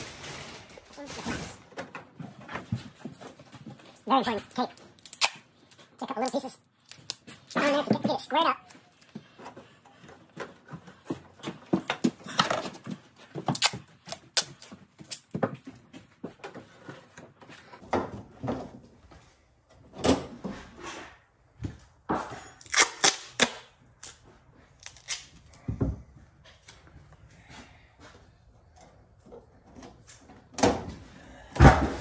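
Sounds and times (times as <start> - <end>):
tape pulled and torn from roll: 5.0 - 5.5, 22.6 - 24.2, 24.8 - 25.6.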